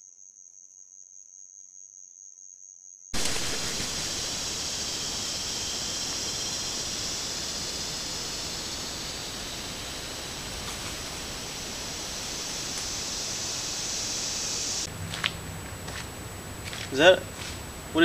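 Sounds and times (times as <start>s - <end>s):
night insects trilling: 0.0s - 18.0s
loud even hiss: 3.2s - 15.3s.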